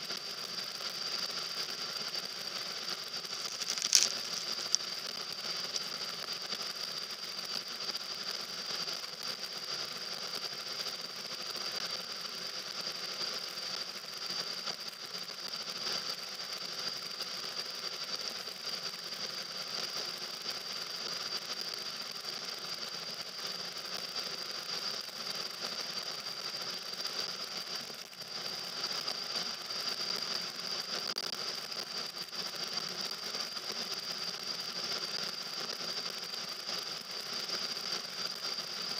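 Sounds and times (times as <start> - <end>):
steady high whine: 0.0 - 15.5.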